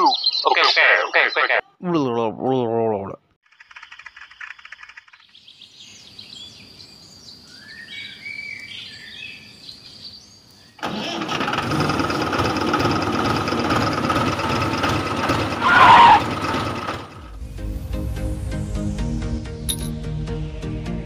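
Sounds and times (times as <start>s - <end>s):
birds chirping: 0.0s - 1.8s, 3.6s - 10.8s
mini tractor engine running: 10.8s - 17.3s.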